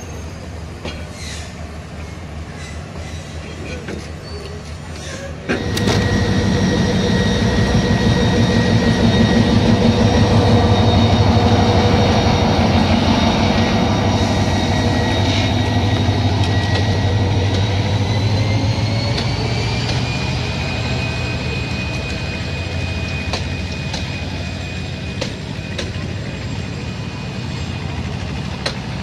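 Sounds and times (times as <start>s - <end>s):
diesel locomotive passing: 0.0s - 29.0s
steady whine: 5.5s - 28.5s.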